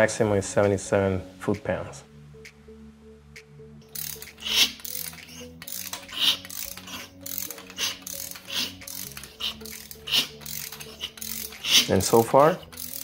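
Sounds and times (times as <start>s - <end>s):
engine turned by hand clicking: 4.0s - 12.0s, 12.6s - 13.0s.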